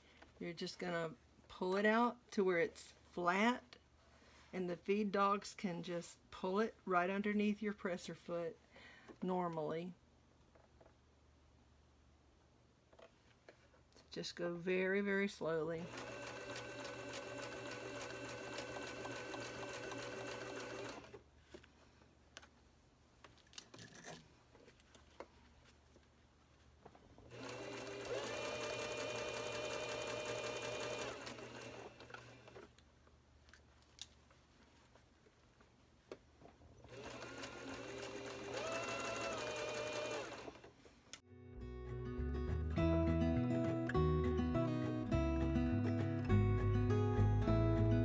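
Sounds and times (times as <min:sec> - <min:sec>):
sewing machine stitching: 0:15.8 - 0:21.2, 0:27.3 - 0:32.7, 0:36.9 - 0:40.7.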